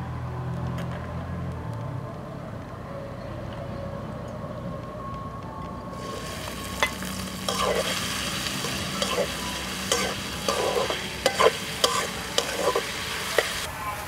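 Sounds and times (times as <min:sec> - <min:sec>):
onions sizzling in hot oil: 0:06.0 - 0:14.0
spatula scraping pan: 0:06.8 - 0:13.7.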